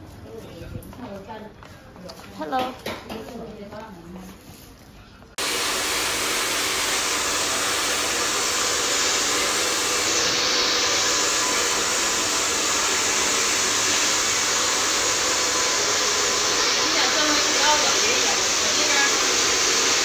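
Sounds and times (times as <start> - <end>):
hair dryer blowing: 5.4 - 20.0.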